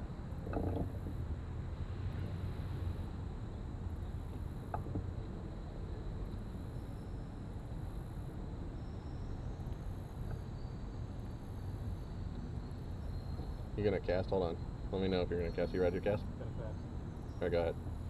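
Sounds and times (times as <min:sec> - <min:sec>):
wind and water rumble: 0:00.0 - 0:06.7
insects buzzing: 0:00.0 - 0:18.0.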